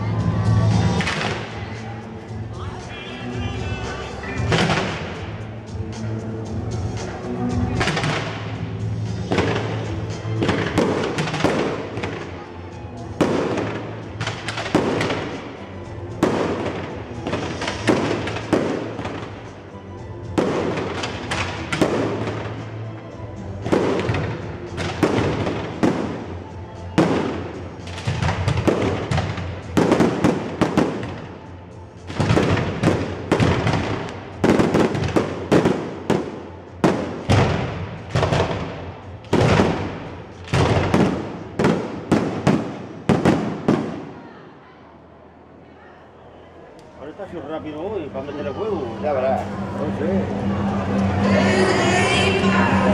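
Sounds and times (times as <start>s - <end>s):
fireworks bursting overhead: 0.1s - 2.0s, 3.6s - 5.5s, 6.9s - 44.4s.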